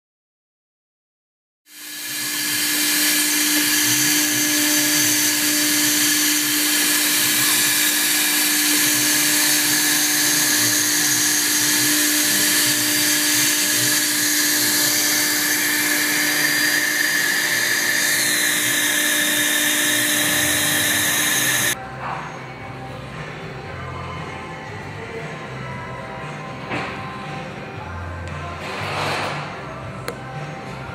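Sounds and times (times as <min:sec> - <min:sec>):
router spindle whine and hiss: 0:01.7 - 0:21.8.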